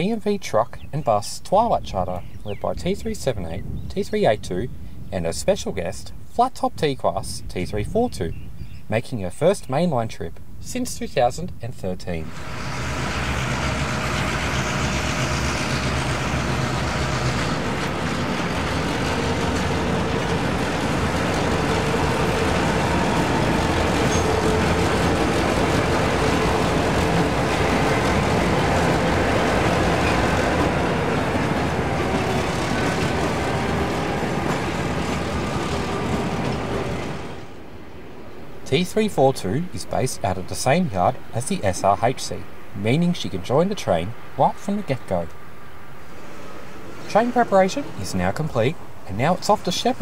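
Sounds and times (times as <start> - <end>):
diesel locomotive engine drone: 12.0 - 50.0.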